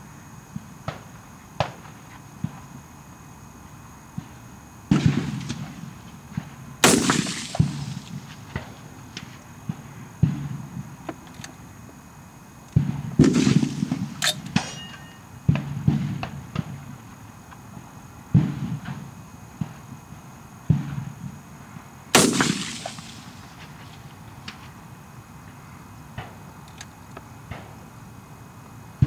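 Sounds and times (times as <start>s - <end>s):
rifle shots echoing: 6.8s - 8.7s, 12.8s - 14.9s, 22.1s - 23.5s.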